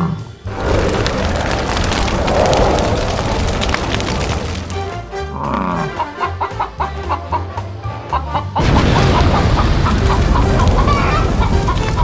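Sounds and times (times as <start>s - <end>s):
loud rough roar: 0.5s - 4.8s
background music: 4.7s - 12.0s.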